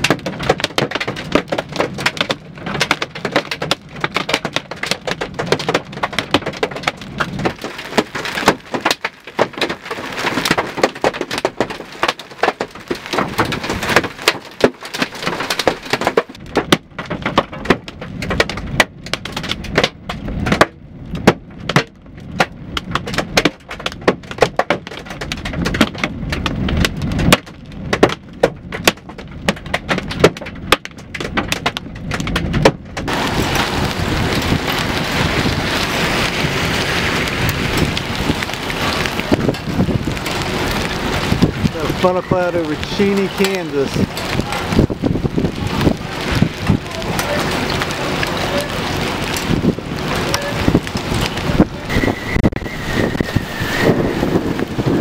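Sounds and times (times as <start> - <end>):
hail and rain pelting a car: 0.0 - 55.0.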